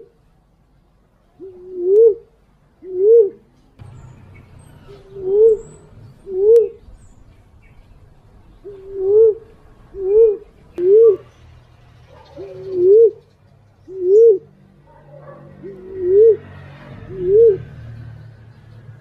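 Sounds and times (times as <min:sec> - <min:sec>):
dove cooing: 0:01.4 - 0:03.5, 0:04.8 - 0:07.0, 0:08.6 - 0:11.4, 0:12.1 - 0:17.8.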